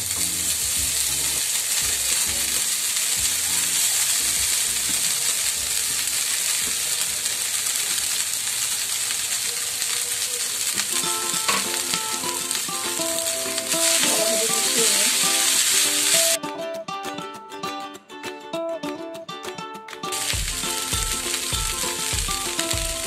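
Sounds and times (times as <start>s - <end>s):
food sizzling in oil: 0.0s - 16.4s, 20.1s - 23.0s
background music: 10.8s - 23.0s.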